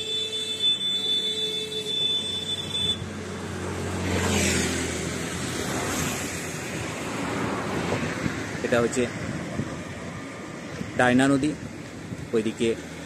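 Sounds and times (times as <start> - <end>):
vehicle passing on road: 1.7 - 13.0.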